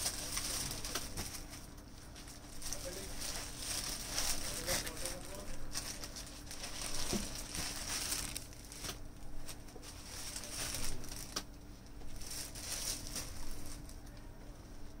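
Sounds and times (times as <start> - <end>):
fabric rustling: 0.0 - 11.4.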